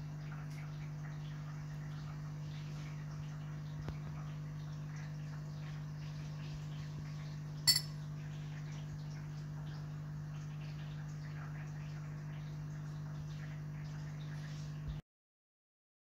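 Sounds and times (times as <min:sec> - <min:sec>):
drinking glass clinking: 0:07.7 - 0:08.0.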